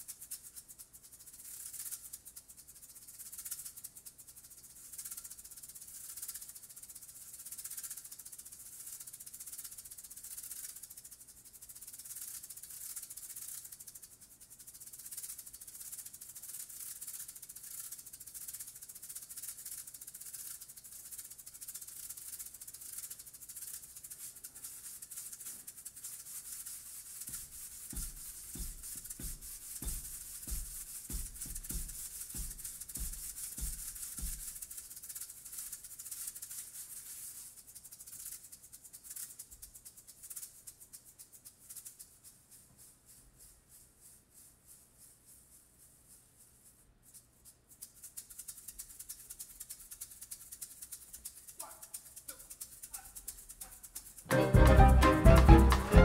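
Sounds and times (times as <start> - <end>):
maracas shaken: 0.0 - 56.0
short deep notes: 54.3 - 56.0.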